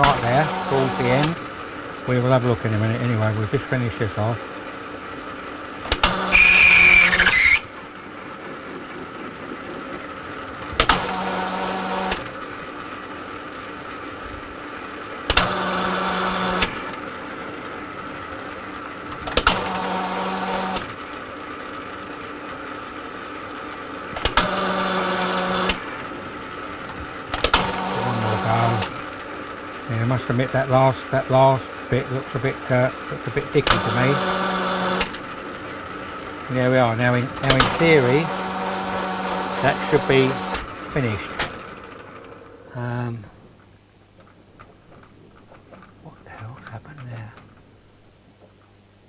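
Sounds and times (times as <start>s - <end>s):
metal lathe running: 0.0s - 42.8s
high scrape of cutting tool: 6.2s - 7.8s.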